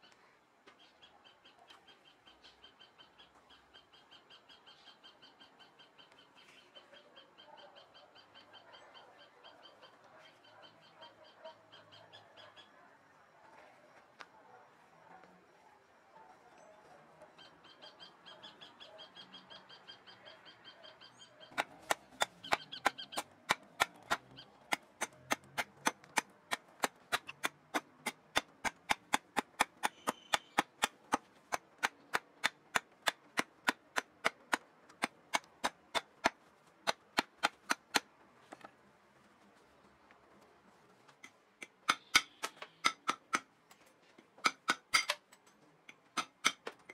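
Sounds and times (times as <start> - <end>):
knife chopping wood: 21.5 - 38.1, 41.2 - 43.5.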